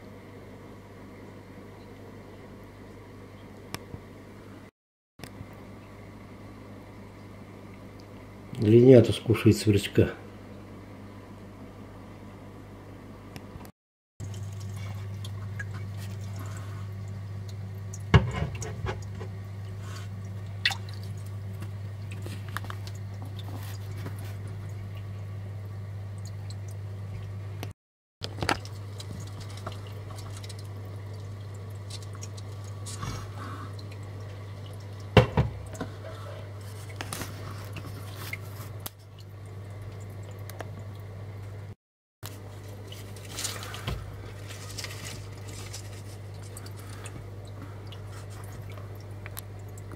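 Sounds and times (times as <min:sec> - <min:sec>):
steady low hum: 0:00.0 - 0:49.9
water drops splashing: 0:20.3 - 0:23.5.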